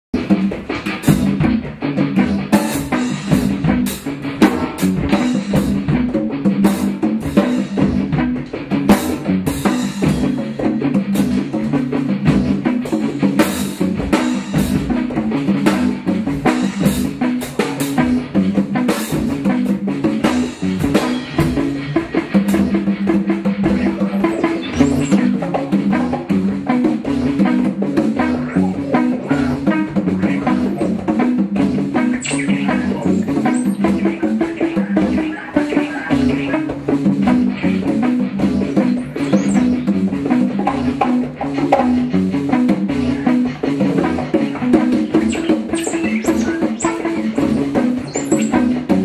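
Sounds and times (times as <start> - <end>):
drum kit beat: 0.1 - 49.0
repeating low pitched line: 20.2 - 49.0.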